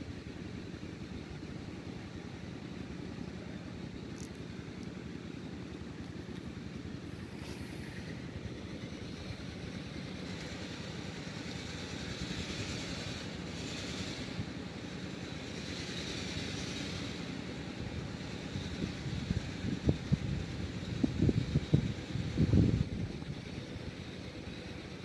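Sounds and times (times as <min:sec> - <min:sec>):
wind buffeting microphone: 0:18.5 - 0:23.7.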